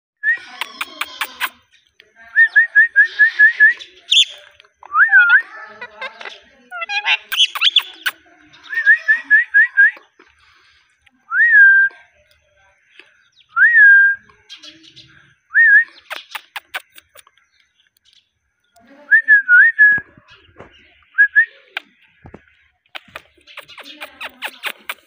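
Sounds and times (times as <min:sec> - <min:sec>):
parakeet whistling: 0:07.0 - 0:08.0
sharp clicks: 0:16.0 - 0:17.4, 0:23.0 - 0:25.0.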